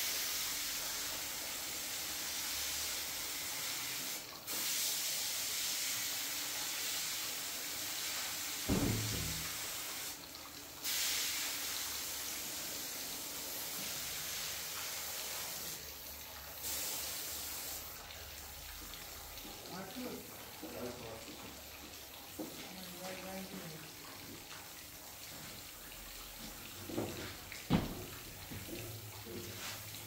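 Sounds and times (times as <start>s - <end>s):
spray paint hissing: 1.6s - 6.2s, 16.6s - 18.0s
dull knock: 8.7s - 9.4s, 27.0s - 28.1s.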